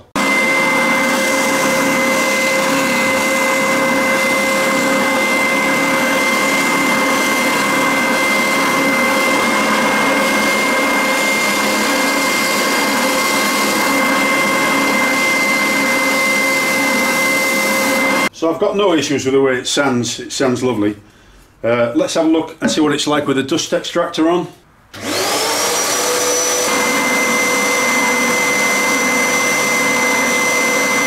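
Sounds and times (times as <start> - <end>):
spindle sander drone and whine: 0.0 - 18.3, 25.0 - 31.0.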